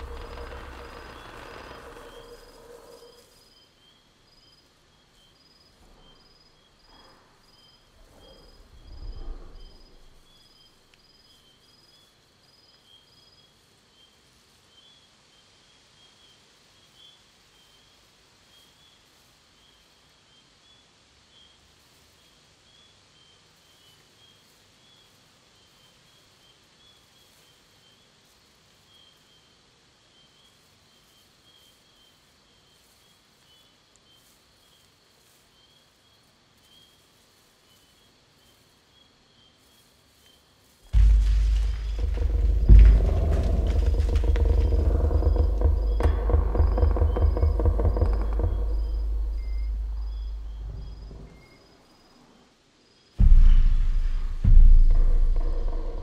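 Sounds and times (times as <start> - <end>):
deep creaking groan: 0.0 - 3.4, 40.9 - 51.5, 53.2 - 56.0
insects chirring: 0.0 - 56.0.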